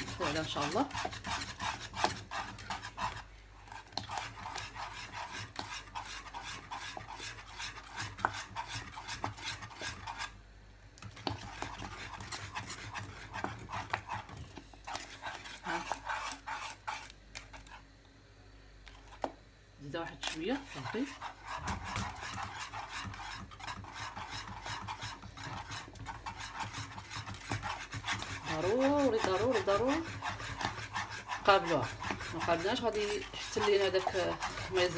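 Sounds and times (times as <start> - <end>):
whisk beating in metal saucepan: 0.0 - 10.4, 11.1 - 17.8, 20.2 - 34.9.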